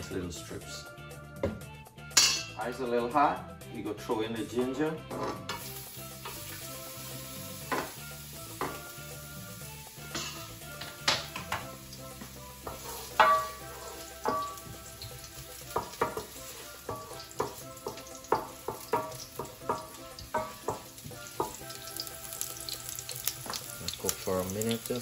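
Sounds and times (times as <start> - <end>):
light sizzle: 5.5 - 25.0
wooden spoon knocking metal pan: 12.6 - 14.7, 15.7 - 21.7.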